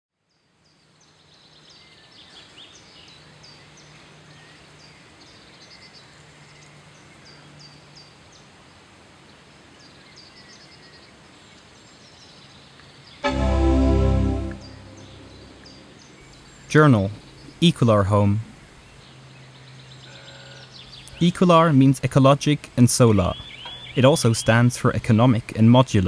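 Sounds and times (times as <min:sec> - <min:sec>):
birds chirping: 0:14.6 - 0:26.0.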